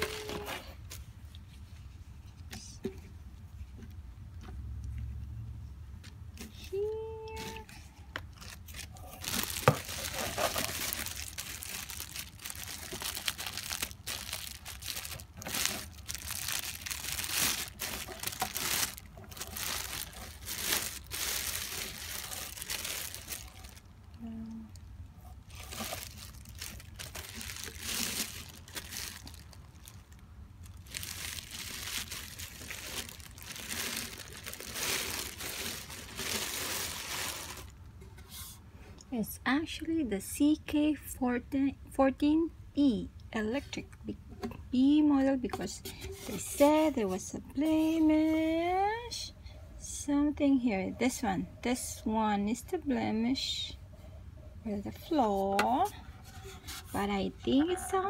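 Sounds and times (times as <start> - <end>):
plastic and bubble wrap crinkling: 0.0 - 1.8, 6.7 - 37.8.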